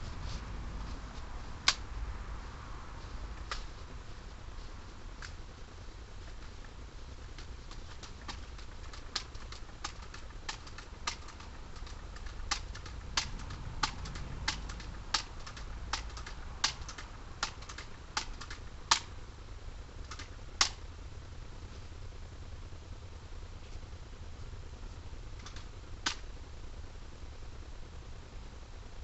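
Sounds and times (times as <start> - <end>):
low steady rumble: 0.0 - 29.0
sharp clicks: 1.6 - 1.8, 7.4 - 19.1, 20.0 - 20.8, 25.4 - 26.3.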